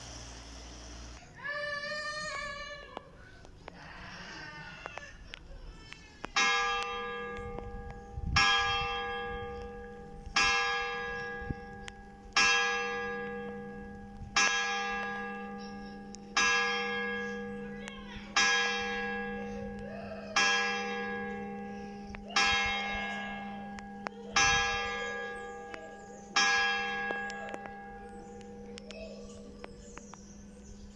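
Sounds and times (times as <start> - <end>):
church bell tolling: 6.3 - 30.9.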